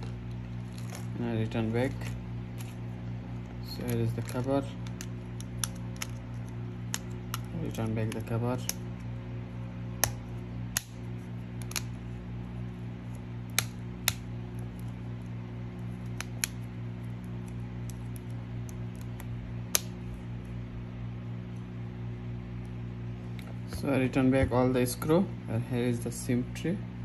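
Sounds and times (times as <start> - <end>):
steady low hum: 0.0 - 27.0
plastic clips snapping: 3.7 - 8.8, 10.0 - 11.0, 11.6 - 12.0.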